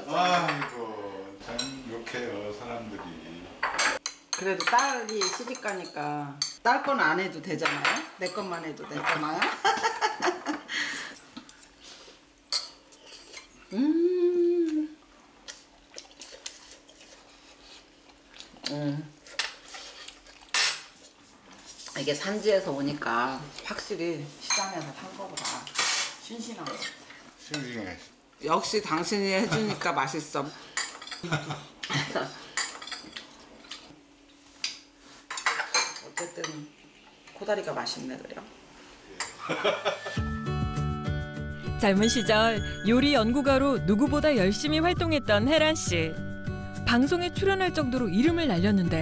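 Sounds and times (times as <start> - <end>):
cutlery and dishes clinking: 3.6 - 6.6, 7.6 - 9.6, 19.2 - 21.0, 30.7 - 33.9, 35.3 - 36.6.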